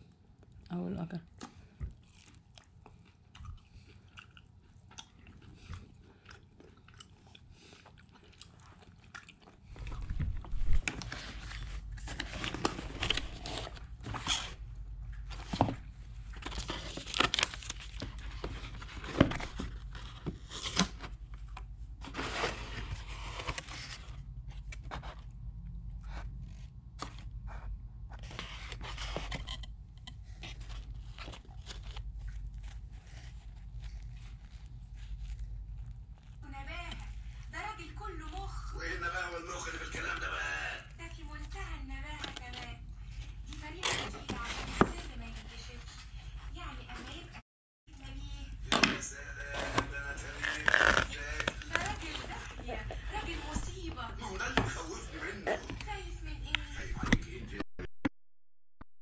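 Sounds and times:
soft chewing: 0.0 - 20.5, 23.9 - 37.6
cardboard boxes crackling and rustling: 10.1 - 14.6, 15.3 - 21.2, 22.0 - 24.2, 43.6 - 45.8, 49.6 - 55.0.

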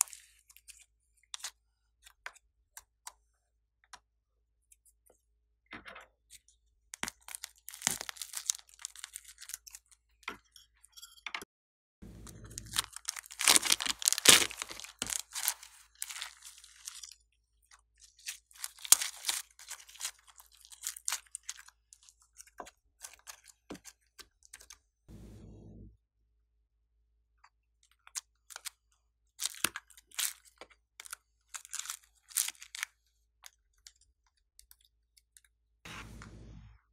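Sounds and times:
slime crackling and popping: 7.0 - 9.6, 12.4 - 17.1, 18.2 - 21.6.

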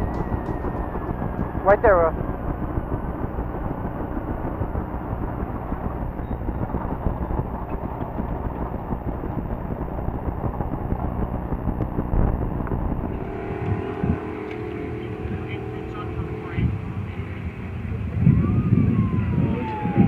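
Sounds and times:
truck engine idling: 13.0 - 19.1.

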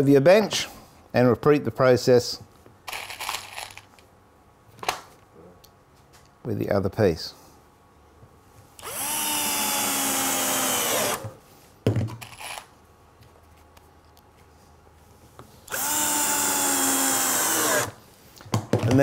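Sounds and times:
cordless drill driving screws: 8.8 - 11.3, 15.7 - 18.0.

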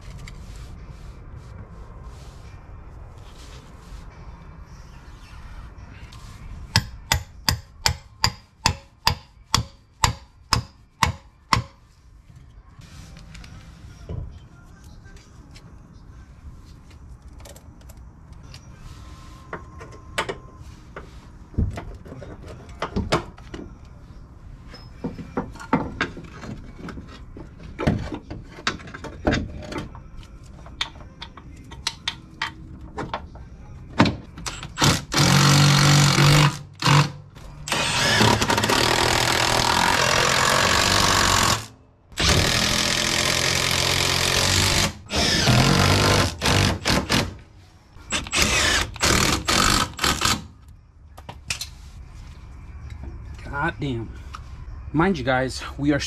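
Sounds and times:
impact wrench running: 34.5 - 47.4, 48.1 - 50.4.

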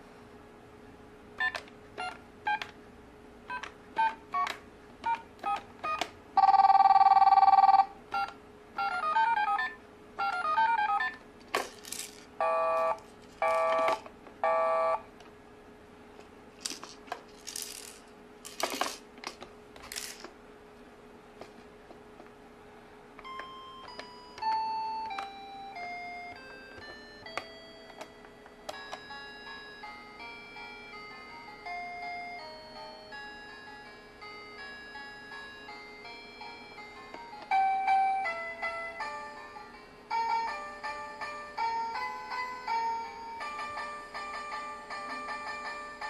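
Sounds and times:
toy telephone beeps: 3.5 - 11.2
toy telephone ring tone: 5.4 - 11.2, 12.4 - 15.0.

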